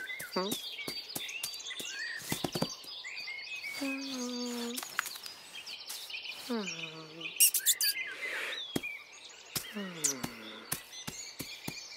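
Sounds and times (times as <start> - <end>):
cartoon birdsong chirps: 3.6 - 4.9, 5.9 - 11.7.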